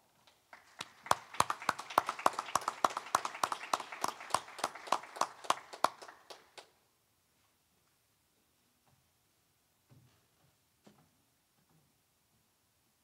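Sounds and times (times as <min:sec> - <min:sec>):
people clapping: 0:00.3 - 0:06.8.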